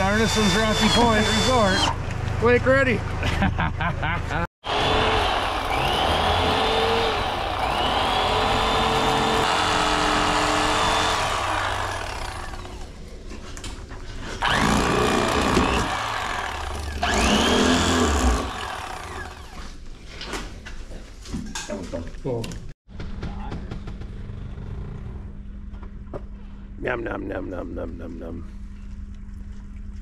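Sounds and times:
electric fillet knife buzzing: 0:00.3 - 0:02.0, 0:04.7 - 0:12.9, 0:14.4 - 0:19.6.

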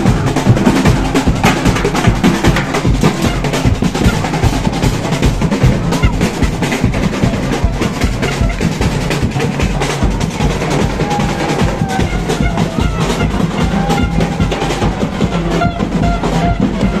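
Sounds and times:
drum band playing fast rhythm: 0:00.0 - 0:17.0
held tones over drumming: 0:00.0 - 0:17.0.

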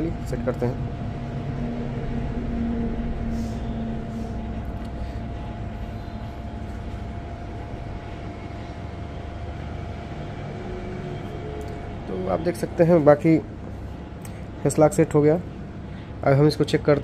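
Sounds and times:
low background rumble: 0:00.0 - 0:16.2
low drone: 0:00.0 - 0:16.2
faint constant hum: 0:00.0 - 0:17.0.

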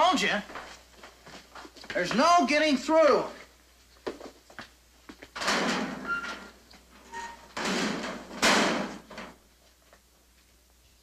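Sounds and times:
locker door squeaking: 0:05.4 - 0:09.2
locker door rattling: 0:05.4 - 0:09.4.

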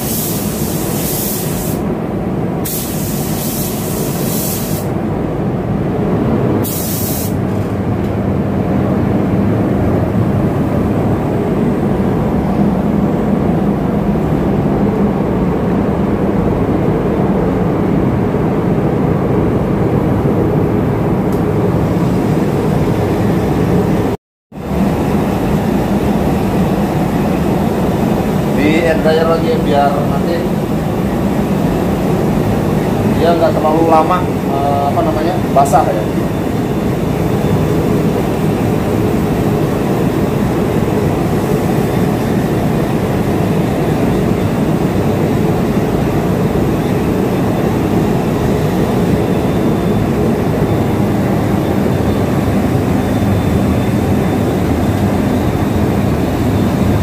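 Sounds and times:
paint spray gun hissing: 0:00.0 - 0:01.8, 0:02.6 - 0:04.9, 0:06.6 - 0:07.4.

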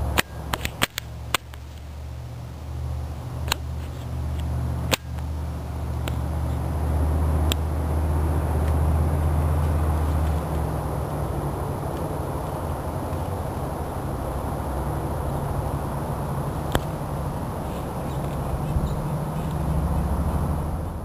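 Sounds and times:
steady low hum: 0:00.0 - 0:21.0
sharp clicks: 0:00.1 - 0:01.9.

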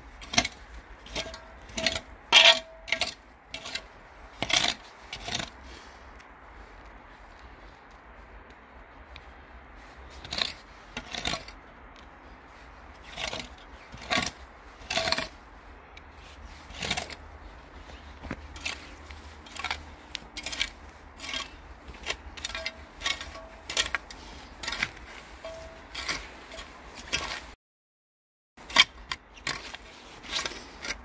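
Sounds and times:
metal scoop scraping dry soil: 0:00.0 - 0:06.0, 0:09.8 - 0:11.6, 0:12.5 - 0:15.4, 0:16.1 - 0:27.6, 0:28.6 - 0:31.0.

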